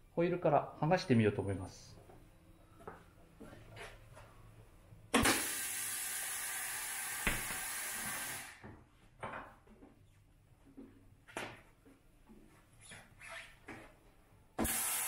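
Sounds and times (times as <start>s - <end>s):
compressed air hissing: 14.6s - 15.0s.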